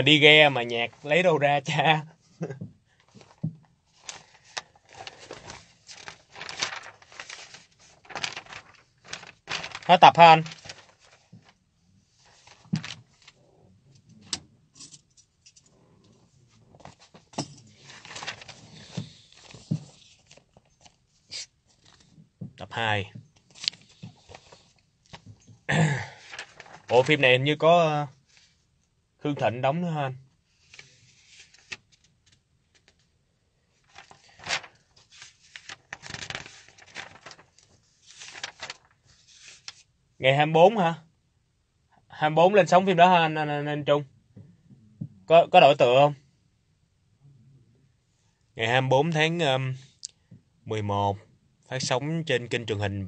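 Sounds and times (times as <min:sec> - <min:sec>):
rustling: 0:03.1 - 0:11.6, 0:12.2 - 0:13.4, 0:16.7 - 0:22.1, 0:26.2 - 0:27.1, 0:33.8 - 0:39.9.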